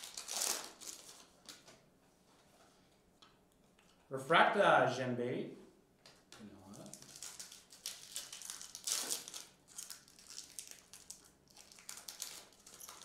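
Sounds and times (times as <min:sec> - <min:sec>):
foil wrapper crinkling: 0:00.0 - 0:01.7, 0:06.6 - 0:13.0.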